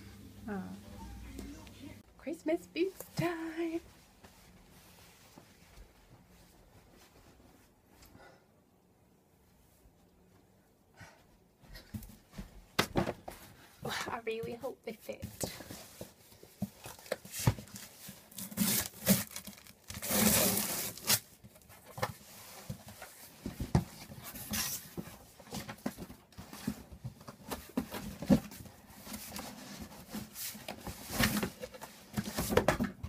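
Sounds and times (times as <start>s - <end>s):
packaging ripping and rustling: 16.9s - 21.4s.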